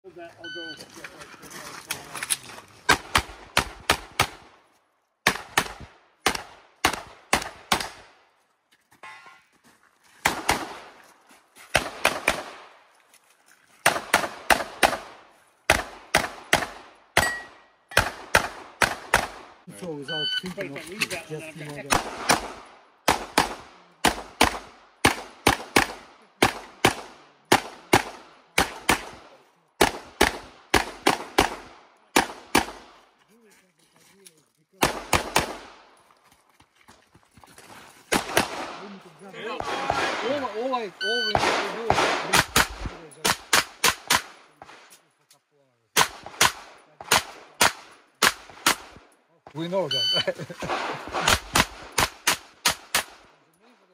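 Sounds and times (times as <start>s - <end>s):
pistol shots: 2.9s - 4.6s, 5.2s - 8.1s, 10.2s - 11.0s, 11.7s - 12.7s, 13.8s - 19.6s, 21.9s - 32.9s, 34.8s - 35.9s, 38.1s - 38.9s, 41.2s - 44.8s, 45.9s - 49.0s, 50.7s - 53.3s.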